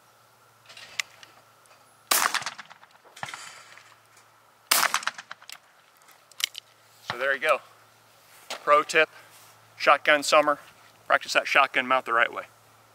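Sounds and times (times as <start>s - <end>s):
sharp shotgun shots: 2.1s - 3.7s, 4.7s - 5.5s.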